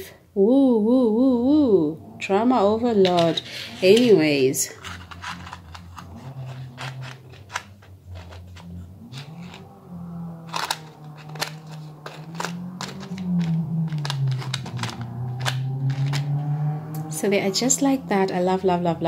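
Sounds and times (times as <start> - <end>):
earring box clicks: 10.5 - 16.3.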